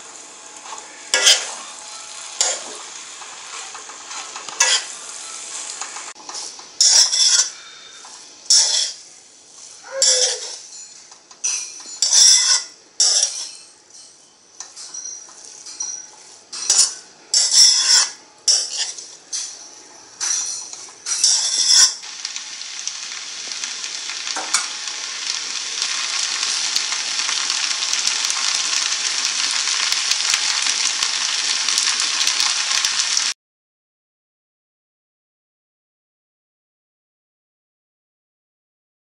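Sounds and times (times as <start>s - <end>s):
faint sizzle of frying: 0.0s - 33.4s
metal spatula scraping pan: 0.6s - 22.0s.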